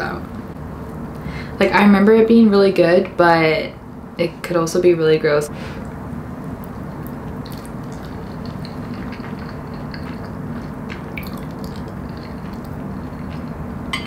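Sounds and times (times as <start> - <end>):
steady low hum: 0.0 - 14.0
person chewing and slurping noodles: 7.0 - 13.7.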